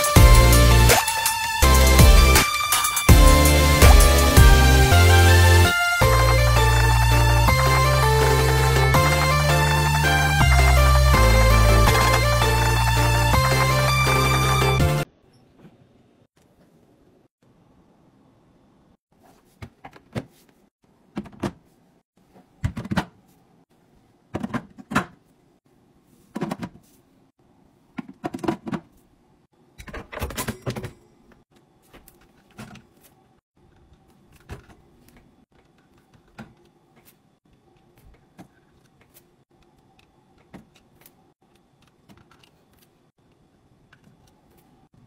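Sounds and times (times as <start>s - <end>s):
plastic bins and bottles knocking: 28.0s - 29.0s
items clattering: 29.8s - 33.2s.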